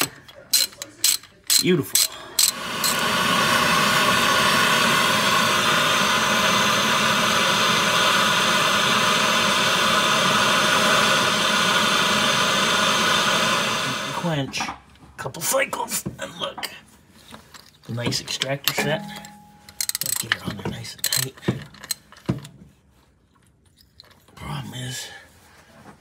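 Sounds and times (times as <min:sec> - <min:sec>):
gas torch hissing: 0:02.0 - 0:14.4.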